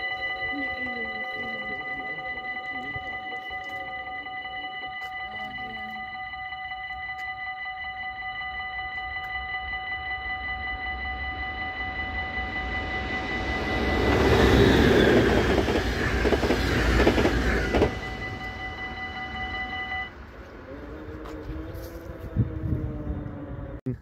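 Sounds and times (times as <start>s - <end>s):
level crossing warning bell: 0.0s - 22.6s
train passing at speed: 8.2s - 23.8s.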